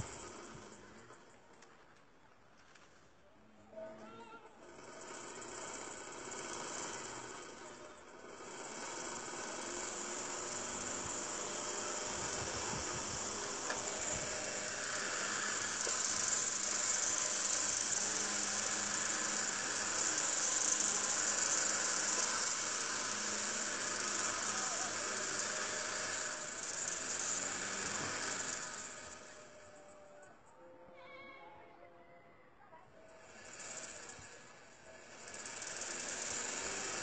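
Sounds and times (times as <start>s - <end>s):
electric fan whirring: 4.6s - 29.8s, 33.2s - 37.0s.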